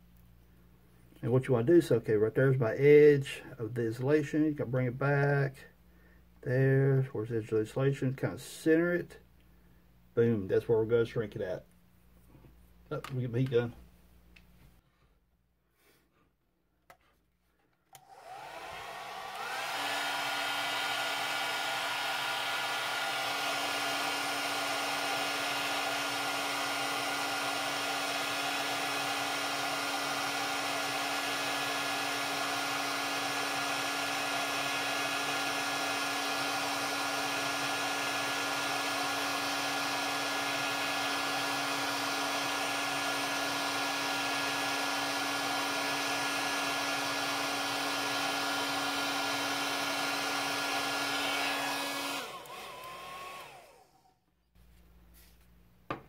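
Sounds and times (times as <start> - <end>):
heat gun blowing: 17.9 - 54.2
fan winding down: 18.0 - 54.1.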